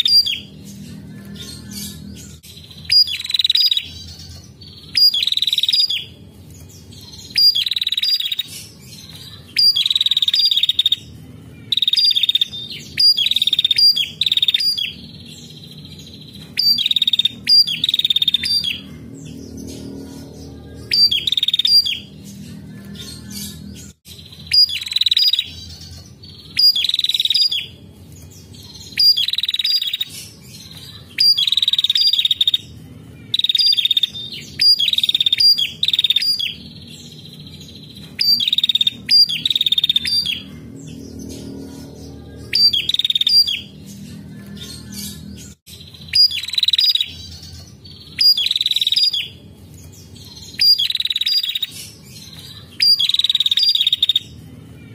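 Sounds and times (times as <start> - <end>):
steady low hum: 0.0 - 54.9
bird chattering: 50.3 - 54.4.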